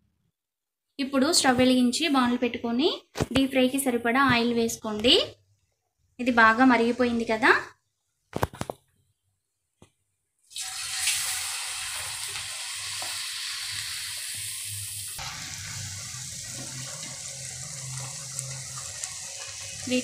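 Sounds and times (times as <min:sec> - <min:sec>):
patties sizzling in hot oil: 0:10.4 - 0:20.0.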